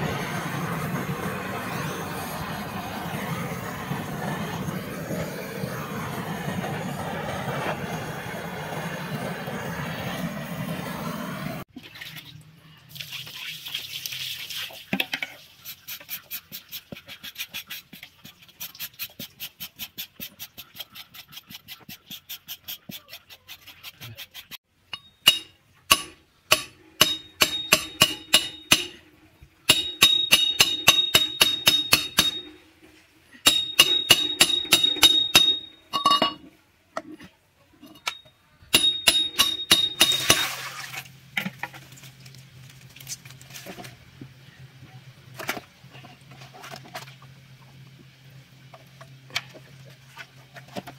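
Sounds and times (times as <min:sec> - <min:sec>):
water pouring into a metal pot: 0:11.7 - 0:15.5, 0:40.1 - 0:41.1.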